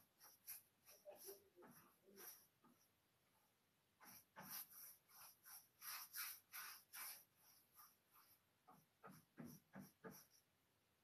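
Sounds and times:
applicator rubbing strokes: 0:04.0 - 0:10.1.

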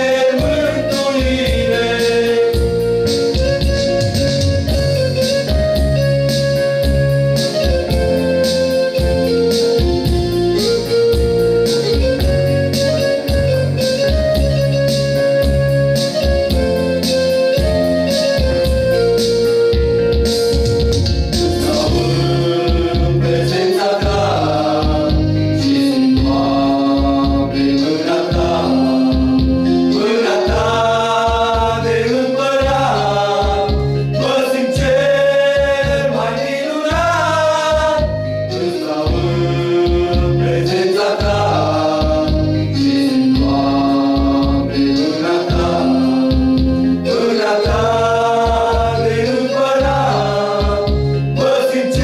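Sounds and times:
men singing together: 0:00.0 - 0:03.5, 0:21.4 - 0:52.0
electronic keyboard through loudspeaker: 0:00.0 - 0:52.0.

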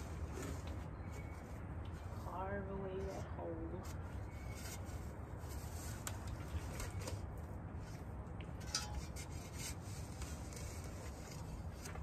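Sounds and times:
metal spade scraping into soil: 0:08.6 - 0:11.5.

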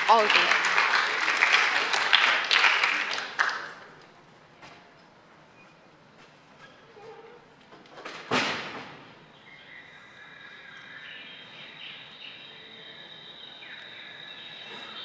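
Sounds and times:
gliding chirp-like calls: 0:09.3 - 0:15.0.

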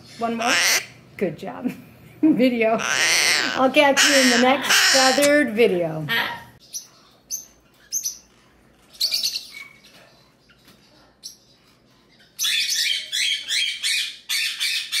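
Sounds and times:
small parrots chirping: 0:00.1 - 0:01.0, 0:02.8 - 0:05.5, 0:06.1 - 0:10.6, 0:11.2 - 0:15.0.

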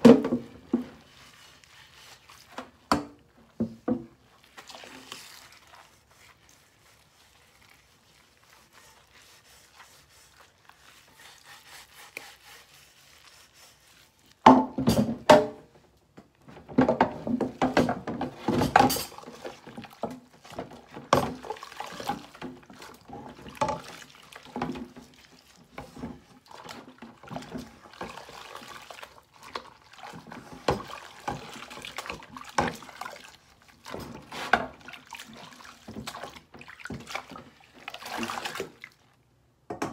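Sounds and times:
sponge scrubbing a pot: 0:00.0 - 0:15.4, 0:16.8 - 0:39.2
pot knocking against metal sink: 0:14.4 - 0:15.6.

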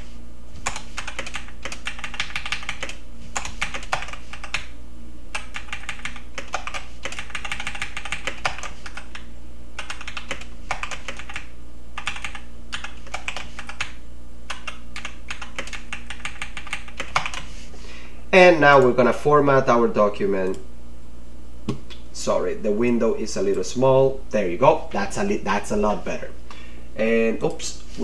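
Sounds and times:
steady low hum: 0:00.0 - 0:28.0
typing on computer keyboard: 0:00.6 - 0:04.7, 0:05.4 - 0:17.5.

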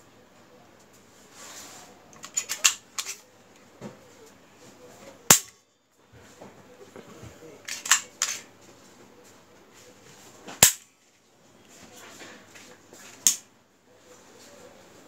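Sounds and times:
soft handling rustle: 0:00.8 - 0:05.2, 0:06.0 - 0:13.2.

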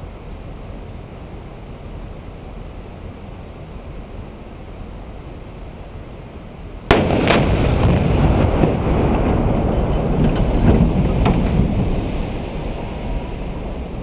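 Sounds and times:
explosive charges blasting: 0:06.9 - 0:12.0.

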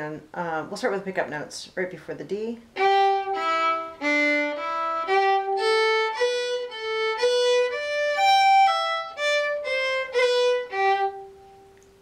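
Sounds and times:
solo fiddle playing a reel: 0:02.8 - 0:11.6.

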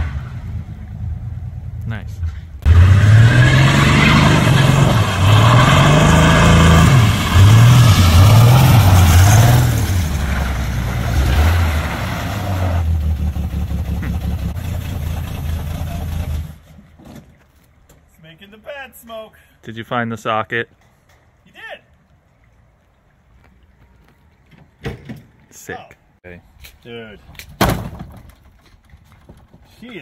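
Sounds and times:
car engine revving: 0:02.6 - 0:16.6.

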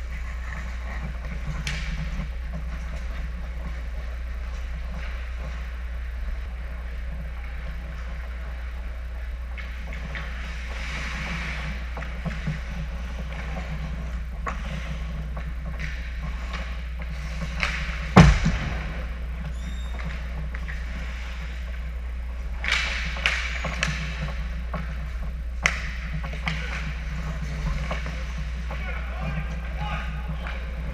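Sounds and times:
skates scraping ice: 0:00.0 - 0:08.9, 0:09.5 - 0:30.9
steady low hum: 0:00.0 - 0:30.9
stick and puck clacks: 0:00.1 - 0:05.7, 0:09.5 - 0:18.6, 0:19.4 - 0:21.0, 0:22.4 - 0:30.9
goalie thud on ice: 0:18.2 - 0:19.0.

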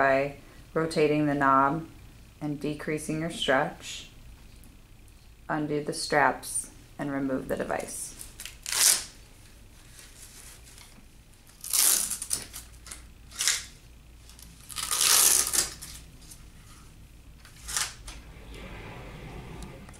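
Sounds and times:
hook-and-loop straps ripping open: 0:08.4 - 0:09.1, 0:11.5 - 0:13.7, 0:14.6 - 0:16.0.

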